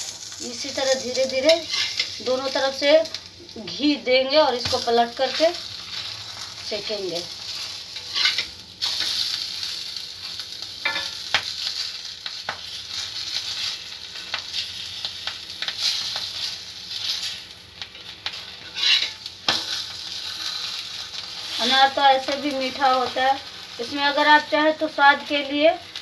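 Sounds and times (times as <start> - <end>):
flatbread sizzling in ghee: 0.0 - 26.0
metal spatula scraping: 0.2 - 2.2, 7.5 - 9.3, 15.8 - 21.8.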